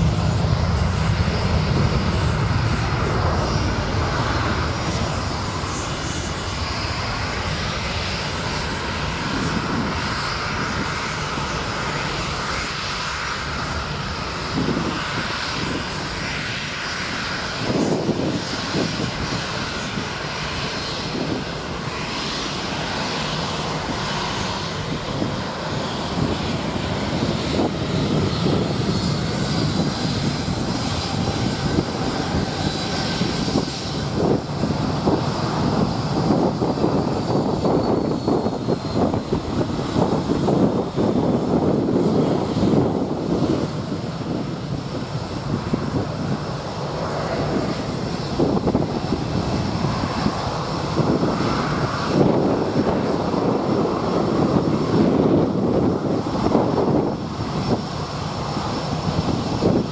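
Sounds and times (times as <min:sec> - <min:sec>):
rush of air: 0:00.0 - 0:13.0
jet engine whine: 0:00.0 - 0:59.9.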